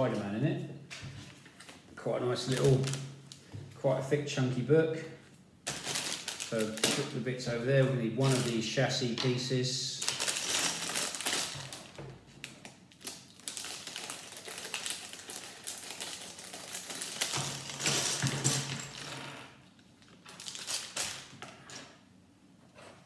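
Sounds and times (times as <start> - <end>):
plastic bag crinkling and tearing: 2.4 - 3.4, 5.7 - 7.2, 8.2 - 8.8, 9.9 - 18.3, 20.0 - 21.4
plastic pieces clattering on table: 13.0 - 19.4.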